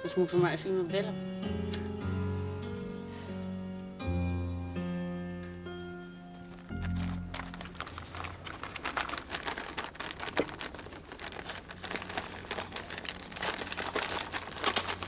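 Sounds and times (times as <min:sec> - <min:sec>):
wrapping paper crinkling: 0:06.5 - 0:15.0.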